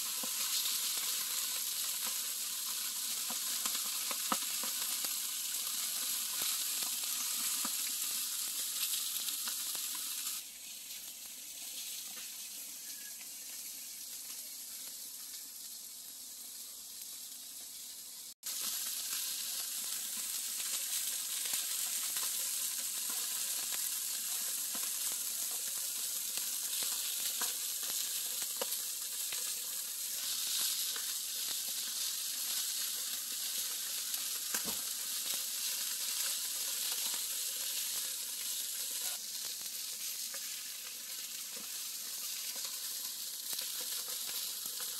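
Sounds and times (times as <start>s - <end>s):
chicken sizzling on a grill: 0.0s - 44.9s.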